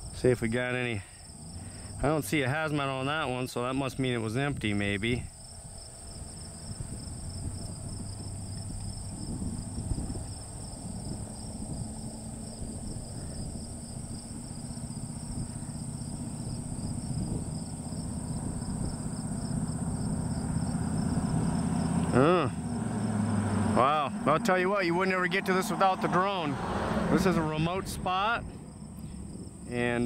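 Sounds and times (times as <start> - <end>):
insects chirring: 0.0 - 30.0
low hum and rumble: 4.0 - 25.3.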